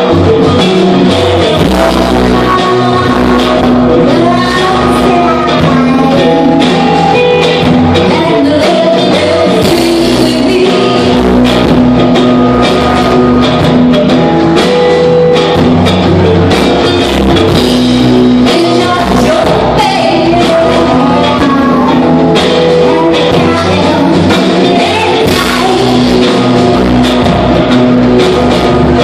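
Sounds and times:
rock band playing: 0.0 - 29.0
woman singing: 0.6 - 11.7, 18.4 - 26.9.

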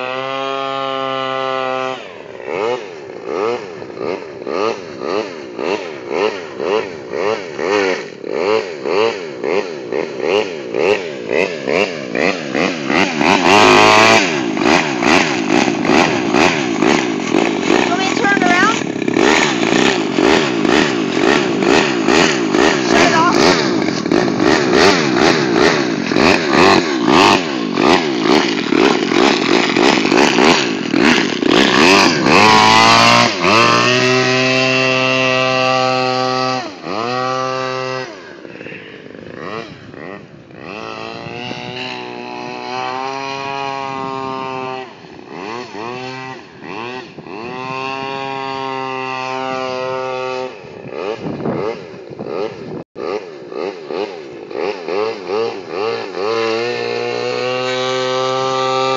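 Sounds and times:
model airboat engine and propeller: 0.0 - 58.9
wind buffeting microphone: 39.1 - 42.3, 50.1 - 52.8.

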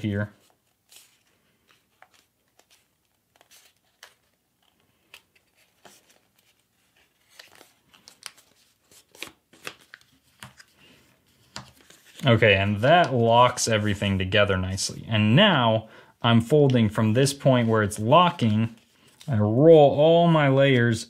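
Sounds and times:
paper crinkling as folded: 0.4 - 12.4.

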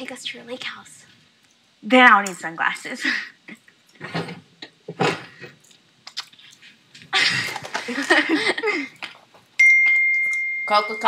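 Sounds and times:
girl laughing: 7.1 - 9.0.

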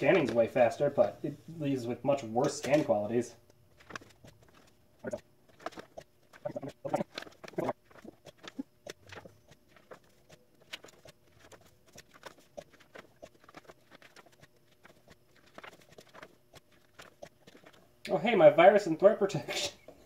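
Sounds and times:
book pages turning: 0.0 - 0.5, 2.2 - 17.8.

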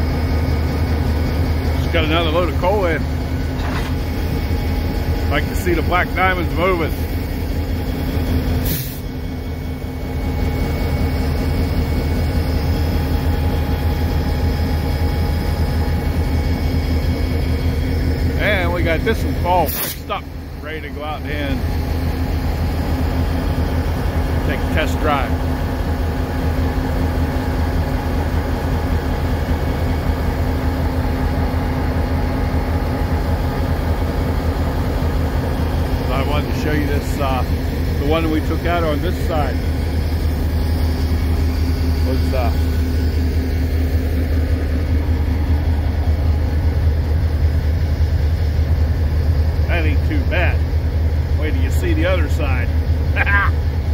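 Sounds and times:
diesel locomotive engine drone: 0.0 - 53.9
short hiss: 19.7 - 20.1.

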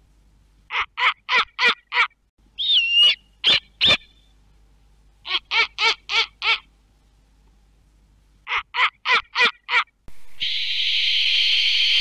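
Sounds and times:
bird harsh calls: 0.7 - 4.3, 10.4 - 12.0
whistled bird note: 2.6 - 4.3, 10.4 - 12.0.

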